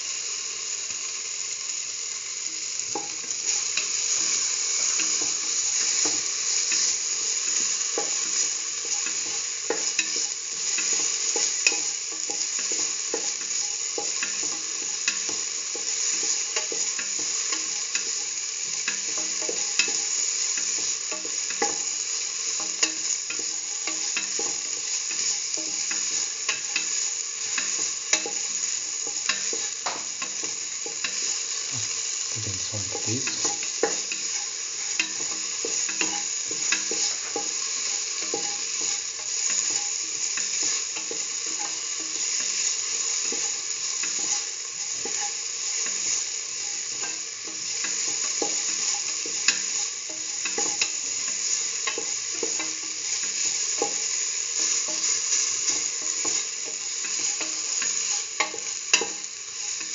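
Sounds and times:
food sizzling in oil: 0.0 - 59.9.

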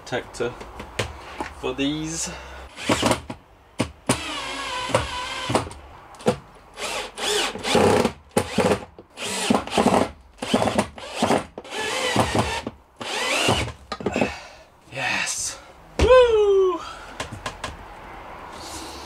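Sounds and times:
cordless drill whining: 4.2 - 5.6, 6.8 - 13.7.

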